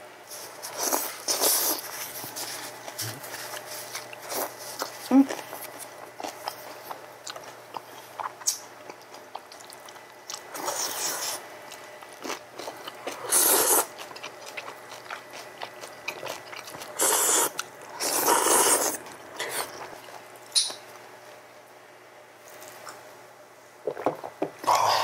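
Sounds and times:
chewing: 0:00.6 - 0:20.7
people slurping noodles: 0:13.2 - 0:13.9, 0:17.0 - 0:19.7.

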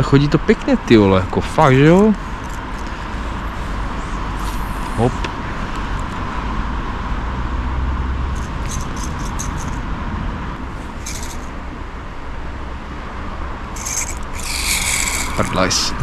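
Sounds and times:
man speaking: 0:00.0 - 0:02.2, 0:04.9 - 0:05.3, 0:15.4 - 0:16.0
fishing reel rattly clicking: 0:08.4 - 0:09.8, 0:11.0 - 0:11.5, 0:13.8 - 0:15.8.

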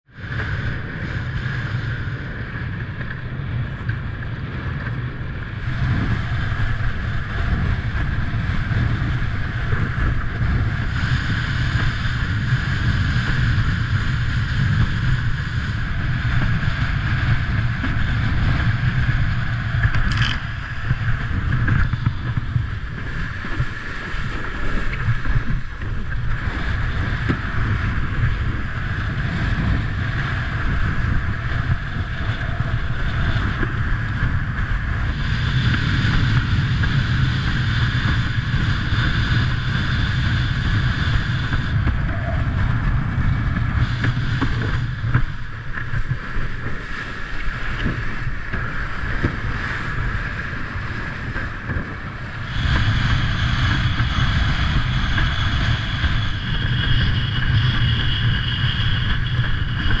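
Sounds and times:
steady high whine: 0:00.0 - 1:00.0
water rushing under board: 0:00.0 - 1:00.0
wind buffeting microphone: 0:00.0 - 1:00.0.

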